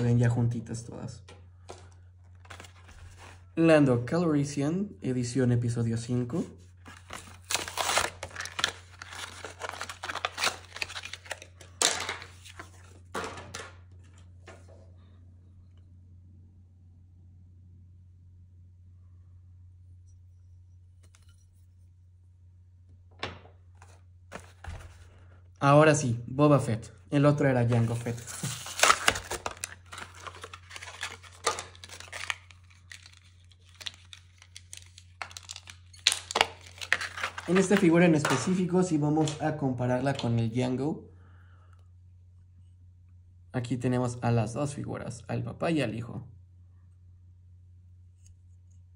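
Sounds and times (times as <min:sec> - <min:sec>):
plastic packaging crinkling: 0:06.8 - 0:13.0, 0:27.6 - 0:40.3
steady low hum: 0:14.0 - 0:29.7.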